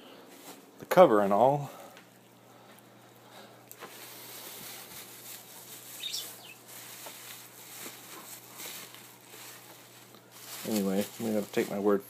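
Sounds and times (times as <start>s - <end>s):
low steady hum: 0.0s - 12.0s
bubble wrap rustling and crinkling: 3.7s - 12.0s.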